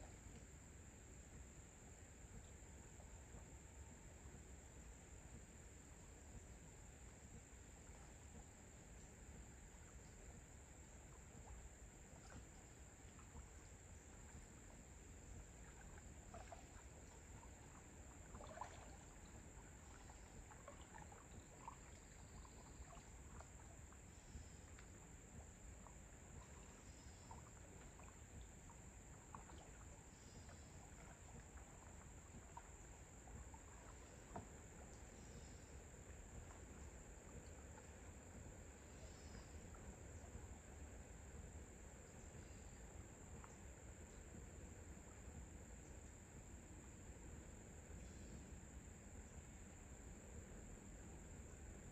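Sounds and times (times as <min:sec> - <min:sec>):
faint chirps: 0:00.0 - 0:51.9
distant paddle splashes: 0:07.1 - 0:45.9.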